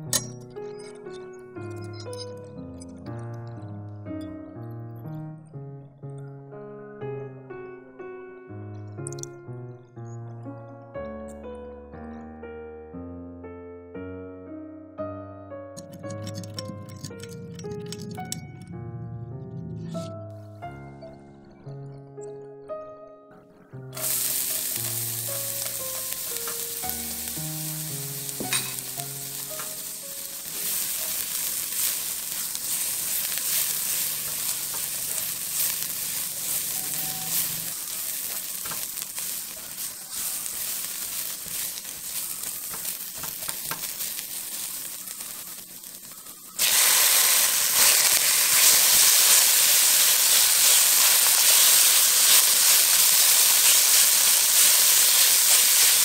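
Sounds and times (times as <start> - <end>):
meat hitting hot pan: 24.0 - 46.0, 46.6 - 56.0
garlic sizzling in hot oil: 24.0 - 56.0
spatula stirring in wok: 28.2 - 56.0.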